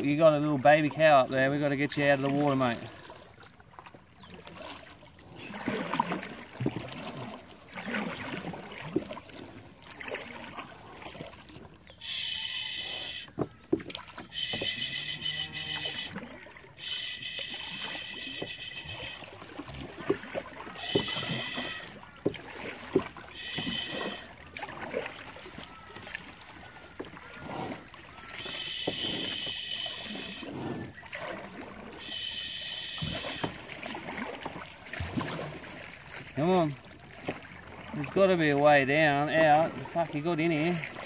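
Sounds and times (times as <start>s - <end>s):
paddle splashing in water: 0.0s - 41.0s
high steady buzzing call: 12.0s - 13.4s, 14.2s - 16.2s, 16.8s - 19.4s, 20.6s - 22.0s, 23.2s - 24.4s, 28.2s - 30.5s, 32.0s - 33.7s.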